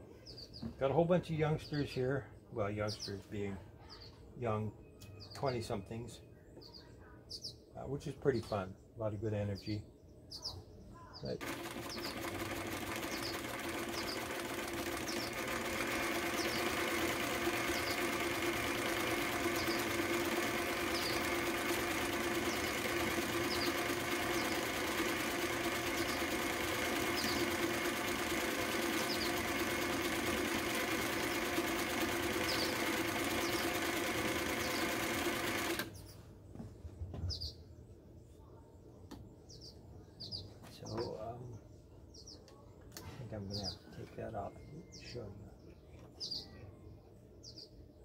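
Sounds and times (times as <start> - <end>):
birds chirping faintly: 0.0 - 48.0
sewing machine running: 11.4 - 36.0.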